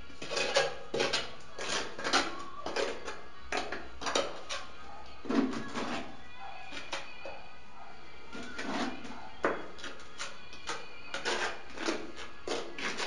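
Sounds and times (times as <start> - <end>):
trowel scraping and slapping adhesive: 0.2 - 4.7, 5.3 - 6.1, 8.4 - 13.0.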